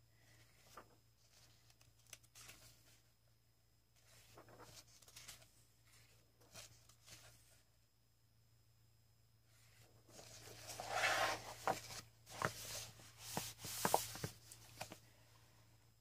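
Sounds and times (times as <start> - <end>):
paper pages rustling: 0.3 - 3.1, 4.0 - 7.6, 10.1 - 15.1.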